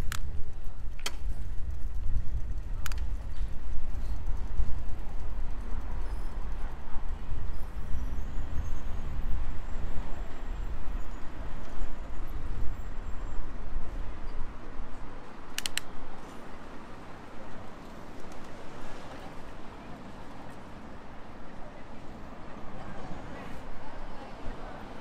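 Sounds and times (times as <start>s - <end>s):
wind rumble: 0.0s - 17.2s
bicycle rolling noise: 0.0s - 19.2s
sharp clicks: 15.5s - 16.0s.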